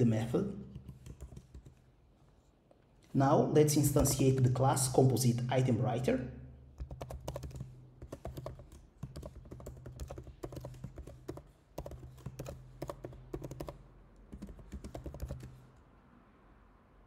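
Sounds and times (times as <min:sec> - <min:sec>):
typing on computer keyboard: 0:00.7 - 0:01.9, 0:06.7 - 0:15.7.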